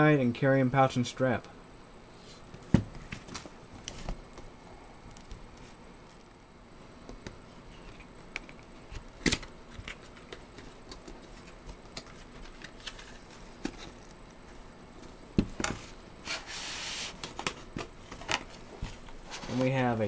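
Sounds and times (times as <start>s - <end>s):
cardboard rubbing: 15.8s - 17.2s.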